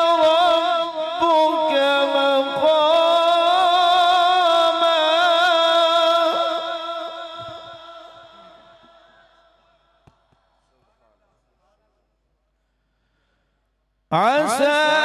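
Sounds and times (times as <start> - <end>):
man reciting melodically: 0.0 - 10.0, 14.1 - 15.0.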